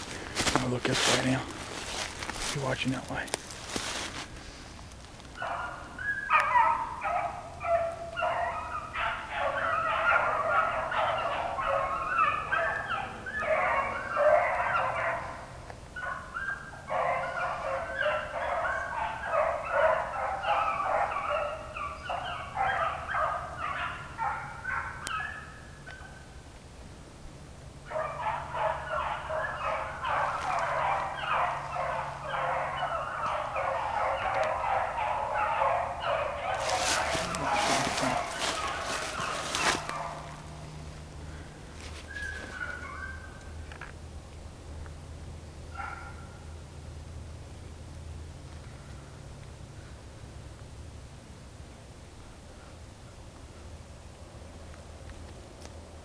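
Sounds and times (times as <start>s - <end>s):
pack of dogs baying: 5.3s - 26.4s, 27.8s - 43.9s, 45.7s - 46.5s.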